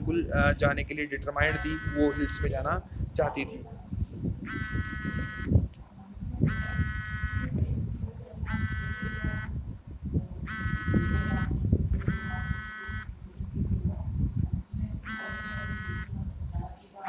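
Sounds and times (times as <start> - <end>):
smartphone ringtone: 1.5 - 2.5, 4.5 - 5.5, 6.5 - 7.5, 8.5 - 9.5, 10.5 - 13.1, 15.0 - 16.1.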